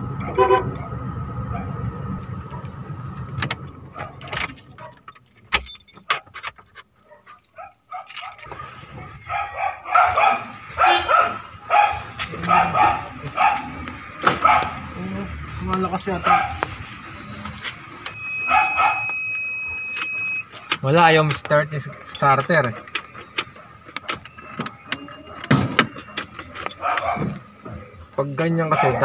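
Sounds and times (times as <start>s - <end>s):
car cabin drone: 0.0s - 6.5s, 8.4s - 22.2s
dog barking: 0.2s - 1.8s, 2.5s - 2.8s, 3.9s - 5.1s, 7.0s - 15.0s, 16.1s - 16.7s, 18.4s - 19.1s, 26.7s - 27.4s, 28.6s - 29.0s
sharp clicks and rattles: 2.1s - 8.6s, 19.9s - 27.5s.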